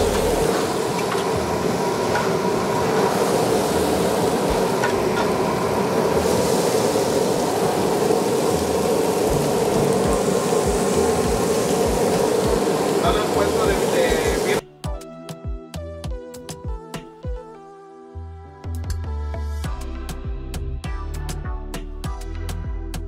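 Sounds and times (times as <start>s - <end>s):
food sizzling on griddle: 0.0s - 14.6s
steady mechanical drone: 0.0s - 14.6s.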